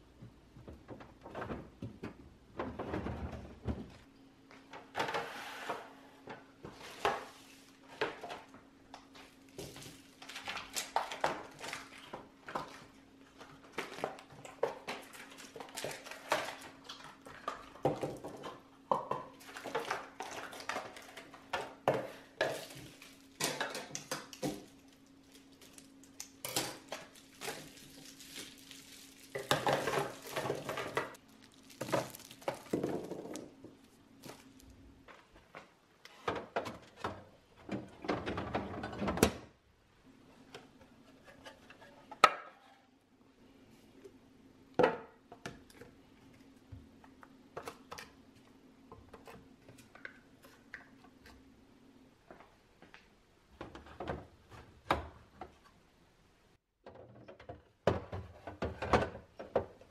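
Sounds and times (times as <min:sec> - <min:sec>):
plastic bins clattering on countertop: 0:00.1 - 0:35.5, 0:36.2 - 0:39.5, 0:56.8 - 0:59.9
cheeses dropping into bins: 0:22.4 - 0:34.8.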